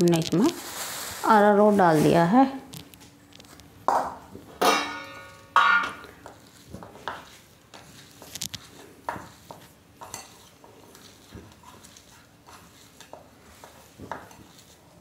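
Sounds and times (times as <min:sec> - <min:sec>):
steel dishes clanging on counter: 0:04.6 - 0:06.2.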